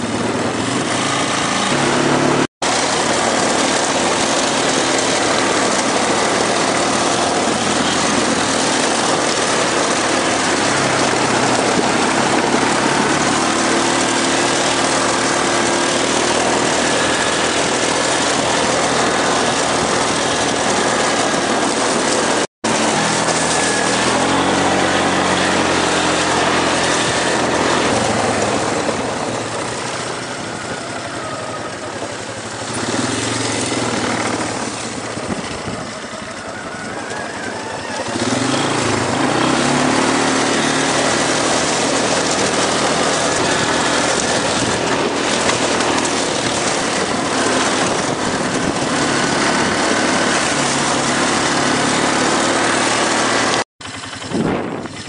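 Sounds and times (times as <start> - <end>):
atv engine running: 0.0 - 55.0.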